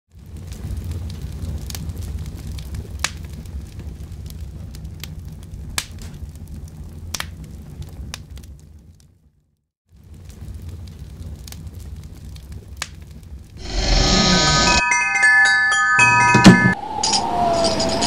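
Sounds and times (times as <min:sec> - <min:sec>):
fire crackling and popping: 0:00.1 - 0:14.0.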